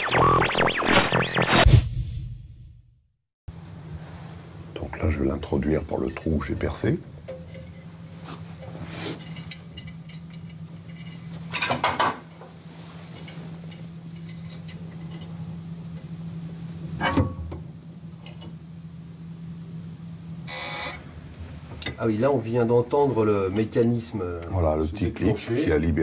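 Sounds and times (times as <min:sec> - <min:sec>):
steady low hum: 0:03.5 - 0:11.6.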